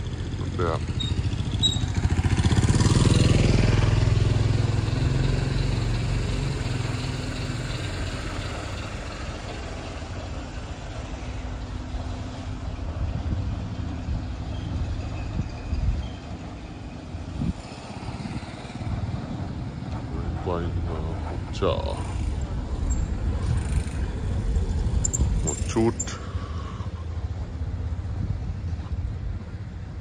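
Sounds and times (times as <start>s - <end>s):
motorbike engine passing: 0.0s - 12.4s, 16.2s - 29.3s
low drone of street traffic: 0.0s - 30.0s.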